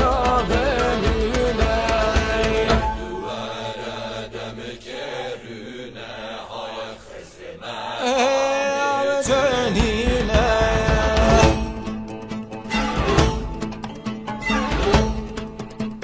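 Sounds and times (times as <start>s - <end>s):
folk band music: 0.0s - 3.5s, 9.4s - 16.0s
percussive strikes: 0.0s - 3.5s, 9.6s - 16.0s.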